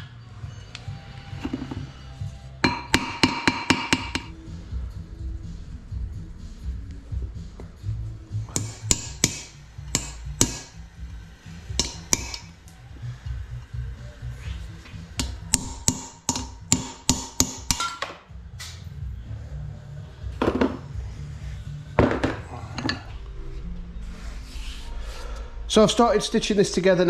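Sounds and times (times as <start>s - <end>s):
background music: 0.0s - 27.0s
hammer tapping metal: 2.6s - 4.3s, 8.5s - 10.8s, 11.7s - 12.5s, 15.2s - 18.1s.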